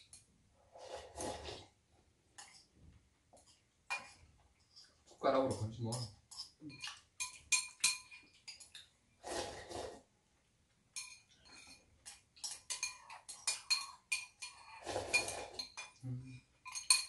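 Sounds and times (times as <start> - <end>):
spoon and chopsticks clinking bowls: 3.4 - 8.9, 10.9 - 17.0.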